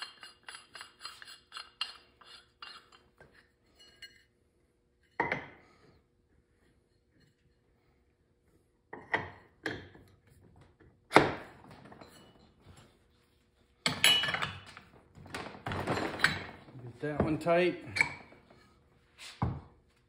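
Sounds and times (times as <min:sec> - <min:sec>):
metal clinks and knocks: 0:13.8 - 0:18.4.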